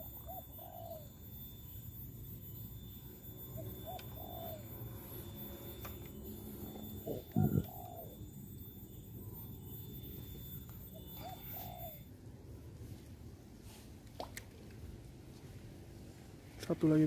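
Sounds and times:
dove cooing: 0:00.0 - 0:01.2, 0:03.5 - 0:05.8, 0:06.4 - 0:08.3, 0:10.9 - 0:12.1.

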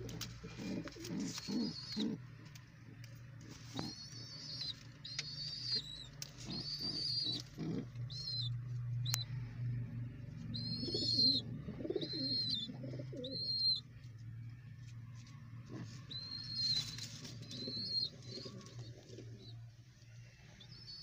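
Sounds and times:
pigeon cooing: 0:00.0 - 0:02.2, 0:03.4 - 0:08.5, 0:10.5 - 0:13.8, 0:15.7 - 0:19.5
young pigeons peeping: 0:00.0 - 0:21.0.

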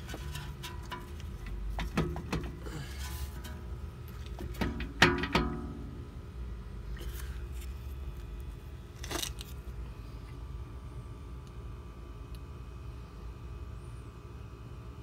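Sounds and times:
metal scrape: 0:00.0 - 0:03.8
low steady hum: 0:00.0 - 0:15.0.

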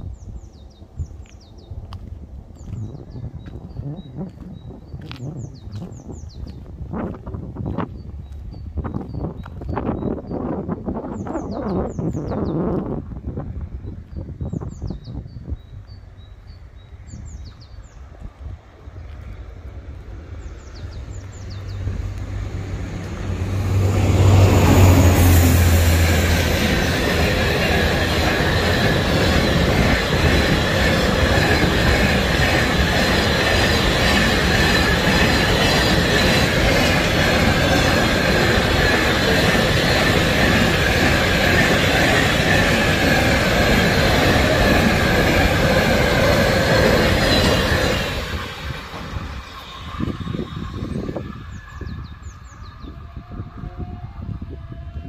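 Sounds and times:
diesel locomotive engine: 0:15.7 - 0:55.0
high wheel squeal: 0:24.7 - 0:54.4.

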